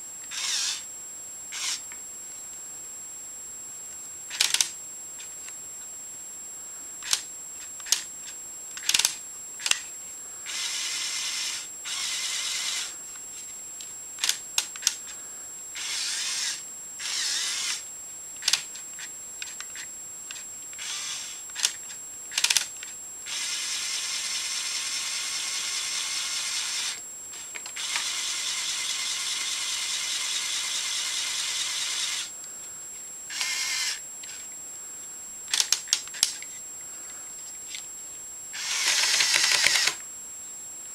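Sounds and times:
small electric motors whirring: 0:00.2 - 0:00.9, 0:01.5 - 0:01.8, 0:04.3 - 0:04.7, 0:07.0 - 0:08.1, 0:08.8 - 0:13.0, 0:15.8 - 0:17.8, 0:18.4 - 0:32.3, 0:33.3 - 0:34.5, 0:38.5 - 0:40.0.

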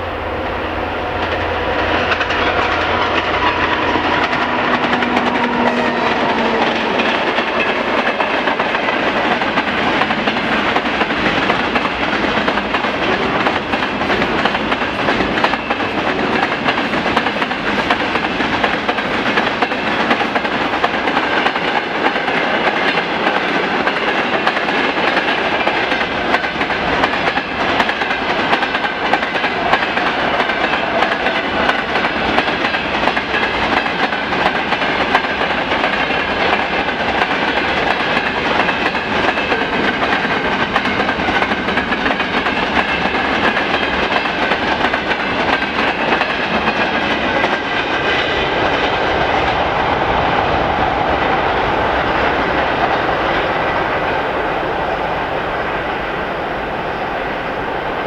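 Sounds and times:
train wheels clattering on rail joints: 0:01.2 - 0:49.6.

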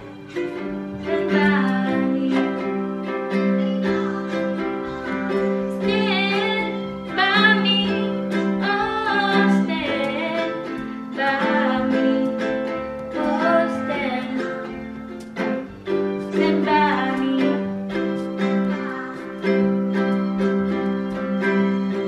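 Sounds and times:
ukulele chords: 0:00.0 - 0:22.0
woman singing: 0:01.0 - 0:02.9, 0:03.5 - 0:14.8, 0:16.3 - 0:19.7.

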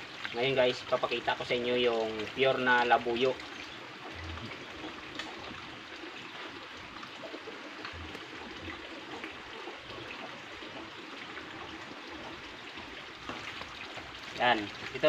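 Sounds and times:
running water: 0:00.0 - 0:15.0.

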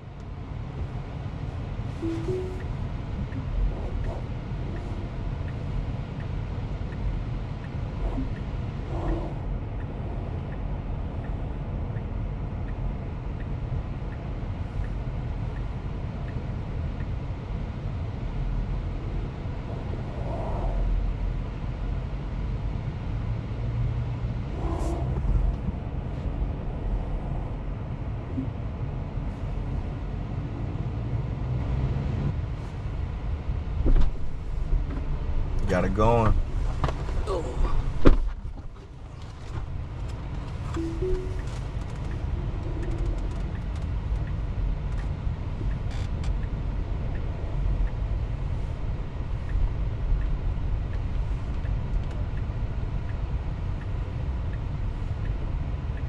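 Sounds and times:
car cabin rumble: 0:00.0 - 0:11.9, 0:24.4 - 0:29.0, 0:33.2 - 0:55.0.

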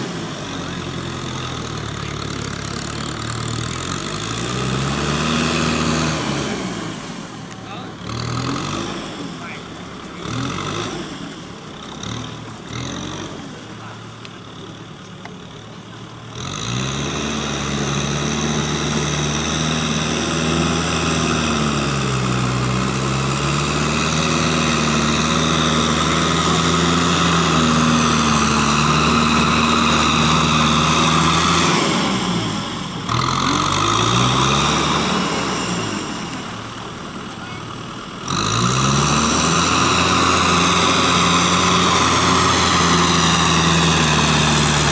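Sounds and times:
tractor diesel engine working: 0:00.0 - 0:44.9.

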